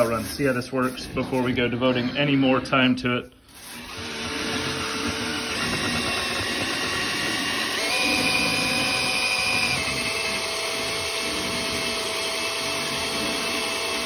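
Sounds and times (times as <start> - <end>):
drill motor whining: 3.5 - 14.0.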